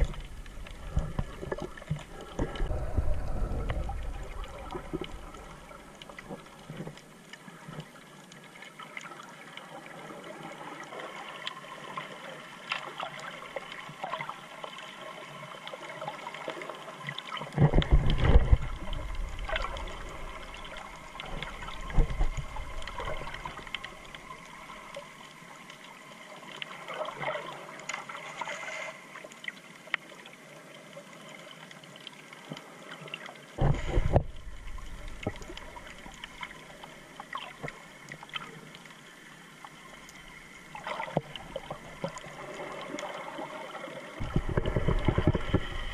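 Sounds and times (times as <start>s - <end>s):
low underwater rumbles: 0.0s - 7.3s, 17.5s - 25.0s, 33.6s - 38.2s, 44.2s - 45.9s
underwater fizzing crackle: 0.0s - 45.9s.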